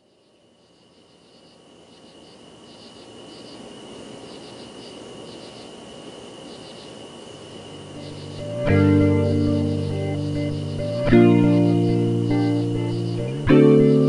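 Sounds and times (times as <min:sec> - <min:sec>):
crickets chirping: 0:00.0 - 0:14.0
steady high tone: 0:07.7 - 0:14.0.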